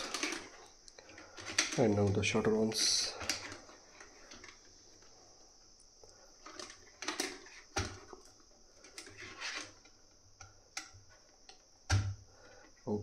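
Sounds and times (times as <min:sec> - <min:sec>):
plastic tubes rustling and rubbing: 0:00.0 - 0:05.6, 0:06.2 - 0:10.0.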